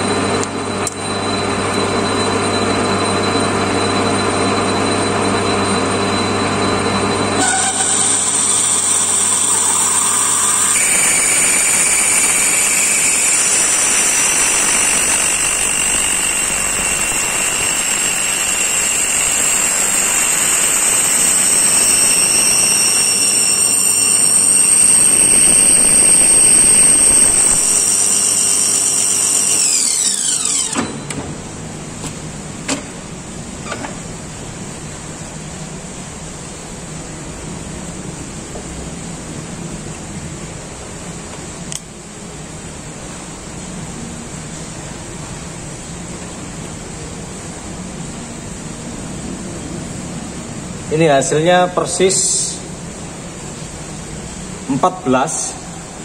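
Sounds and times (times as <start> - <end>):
reamer squealing in steel: 3.8 - 31.0.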